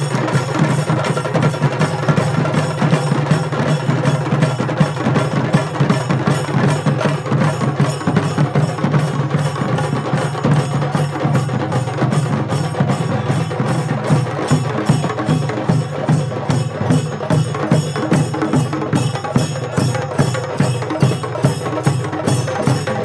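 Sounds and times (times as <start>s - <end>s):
percussion music: 0.0s - 23.0s.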